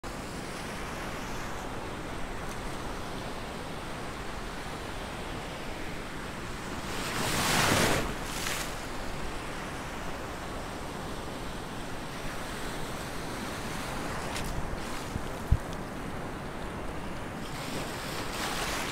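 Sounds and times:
small waves washing: 13.2 - 16.0.

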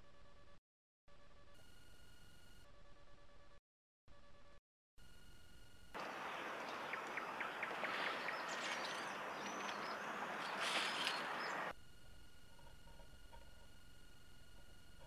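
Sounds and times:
small birds chirping: 6.0 - 11.7.

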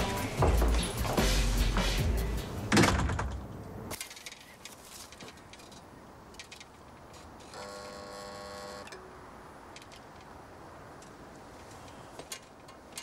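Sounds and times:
intercom buzzer: 7.5 - 8.9.

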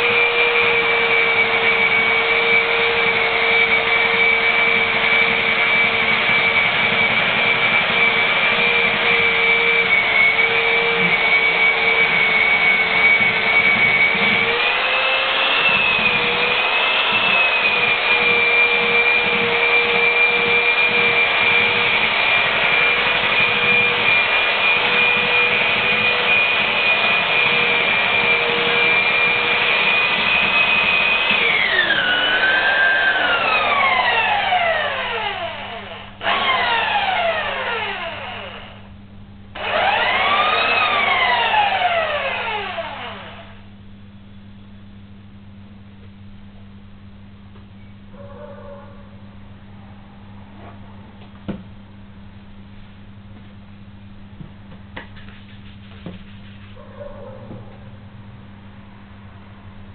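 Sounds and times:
belt sander whining: 0.0 - 38.9, 39.5 - 43.7.

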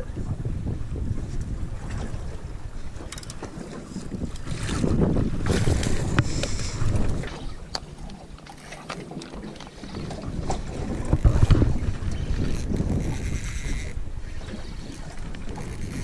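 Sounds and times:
water washing around hull: 0.0 - 16.0
wind buffeting microphone: 0.0 - 16.0.

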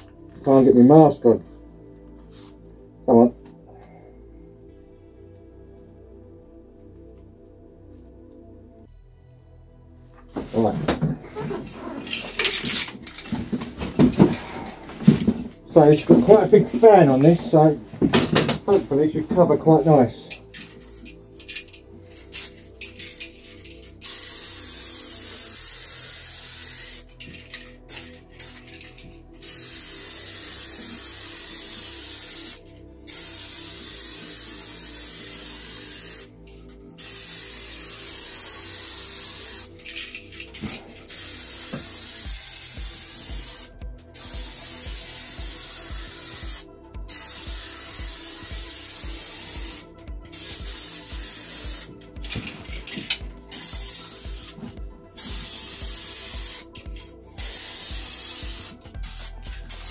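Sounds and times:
spray paint can hissing: 21.1 - 23.4, 24.0 - 36.4, 37.0 - 54.6, 55.2 - 59.9.

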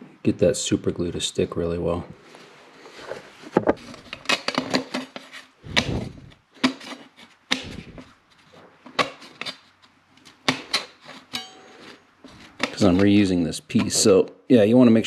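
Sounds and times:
heavy thumps: 3.5 - 3.8, 5.6 - 6.4
wood knocking against wood: 3.6 - 3.8.

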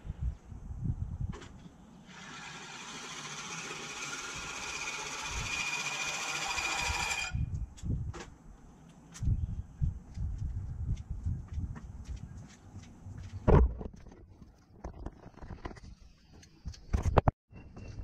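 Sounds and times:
wind thumps: 0.0 - 1.6, 7.4 - 8.5, 9.2 - 16.0
reel mower blades whirring: 2.1 - 7.4.

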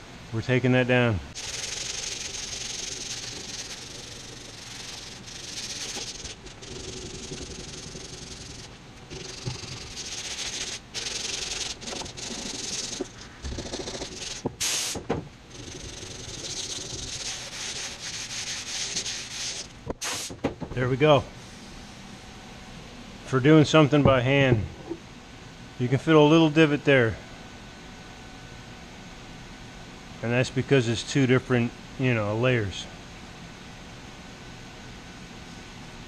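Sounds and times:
hand sanding with sandpaper: 1.4 - 15.0, 15.6 - 20.3.

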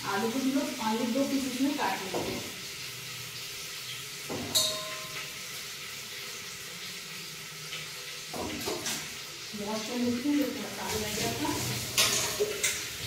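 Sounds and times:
steel pot clinking: 4.3 - 5.5, 11.2 - 13.0.

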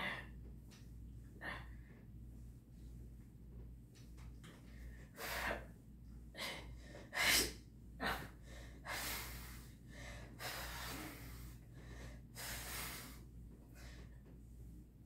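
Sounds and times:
woman breathing hard: 4.8 - 14.2.

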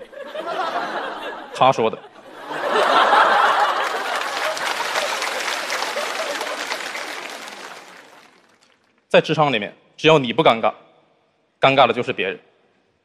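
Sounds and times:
audience laughing and clapping: 0.0 - 8.9.

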